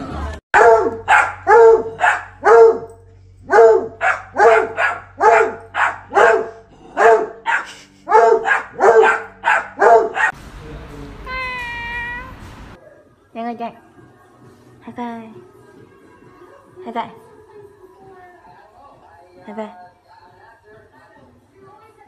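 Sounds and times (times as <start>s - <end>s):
dog barking: 0.6s - 10.4s.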